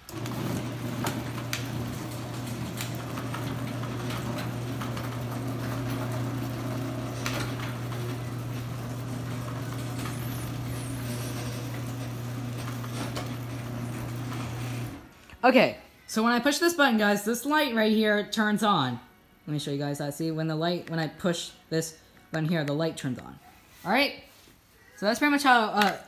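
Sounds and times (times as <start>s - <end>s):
garage door opener motor hum: 0.0s - 15.1s.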